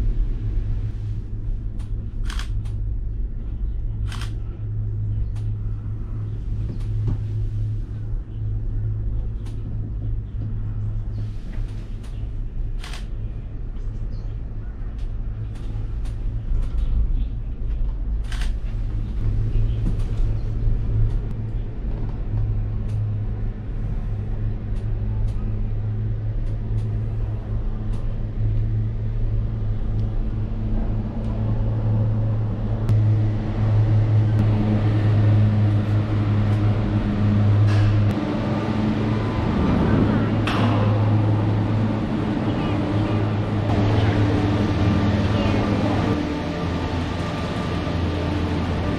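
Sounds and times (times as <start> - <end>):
cable car hum and rumble: 0.0 - 48.9
faint clicks: 4.0 - 4.6, 14.9 - 17.0.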